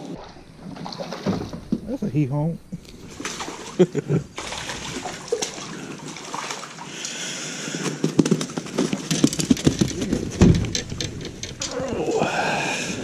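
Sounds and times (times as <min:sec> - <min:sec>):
fish splashing at water surface: 0:03.0 - 0:08.0.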